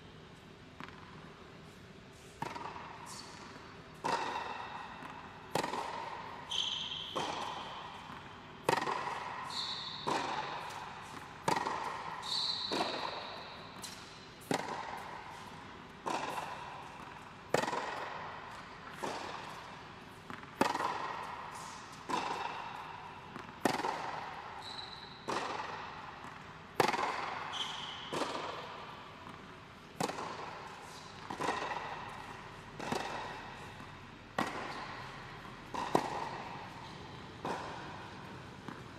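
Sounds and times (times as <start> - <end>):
tennis ball struck and bouncing: 0.7 - 1.4, 2.2 - 38.9
shoes squeaking on court: 1.6 - 15.6, 24.3 - 26.4, 27.1 - 38.9.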